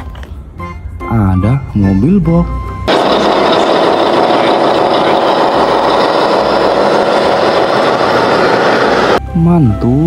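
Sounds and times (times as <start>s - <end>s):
toy truck engine noise: 2.9s - 9.2s.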